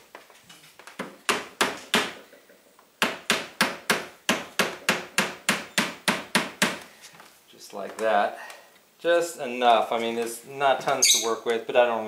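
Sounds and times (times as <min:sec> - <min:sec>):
rubber mallet tapping wood: 0:03.0 - 0:06.9.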